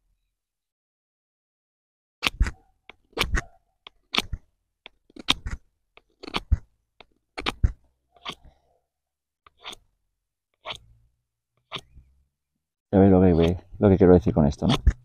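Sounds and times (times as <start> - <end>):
knife carving wooden stick: 2.2 - 8.6, 9.4 - 10.0, 10.6 - 11.0, 11.6 - 12.2, 13.3 - 13.8, 14.5 - 15.0.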